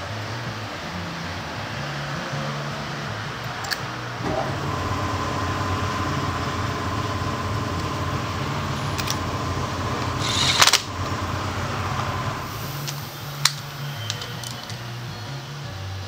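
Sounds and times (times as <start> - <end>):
steady background hum: 4.2 - 13.9
cordless impact wrench burst: 4.2 - 14.2.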